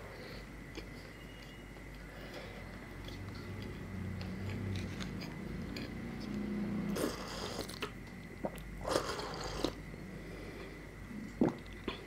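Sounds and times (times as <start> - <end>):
chewing food: 1.9 - 9.8
wet slurping sips: 6.9 - 7.9, 8.8 - 9.8.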